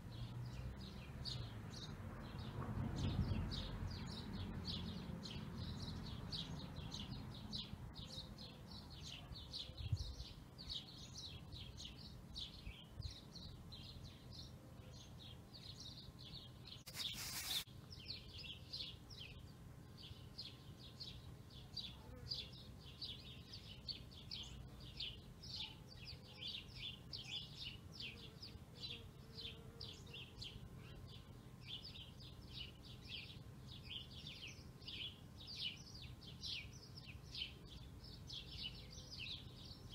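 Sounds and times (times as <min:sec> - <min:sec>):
brief hiss: 0:16.8 - 0:17.7
faint rapid high-pitched chirping: 0:16.8 - 0:18.2.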